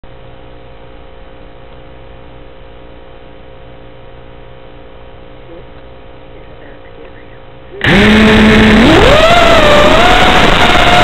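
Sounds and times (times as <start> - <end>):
steady electrical hum and hiss: 0.0 - 7.8.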